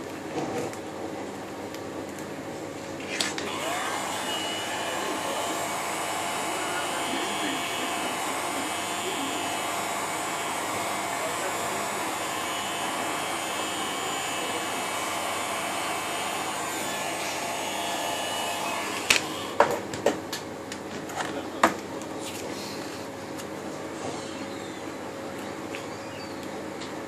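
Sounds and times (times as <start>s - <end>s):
heat gun blowing: 3.0s - 19.6s.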